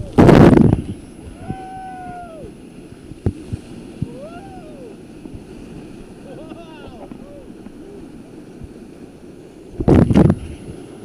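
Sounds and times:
whitewater splashing on microphone: 0.0s - 9.0s
rushing river water: 0.0s - 11.0s
people shouting: 1.4s - 2.5s.

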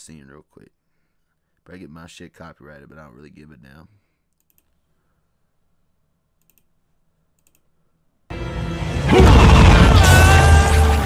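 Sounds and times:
faint clicks: 4.3s - 4.8s, 6.4s - 6.7s, 7.4s - 7.7s
film soundtrack music: 8.3s - 11.0s.

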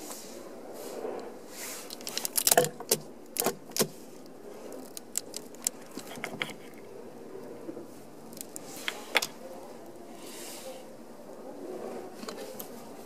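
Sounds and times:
plastic bottle crinkling and clicking: 1.9s - 6.8s.

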